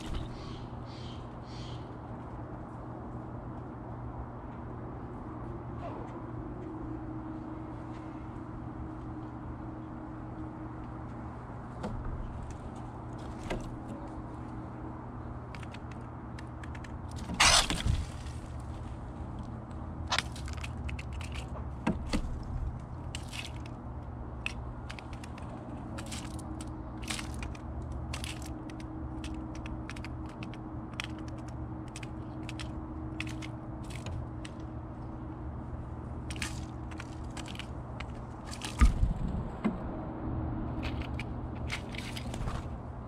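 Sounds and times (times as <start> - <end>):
steady low hum: 0.0 - 43.0
bird pecking at peanut shells: 15.4 - 18.7, 19.4 - 35.4, 36.2 - 39.0, 40.8 - 42.6.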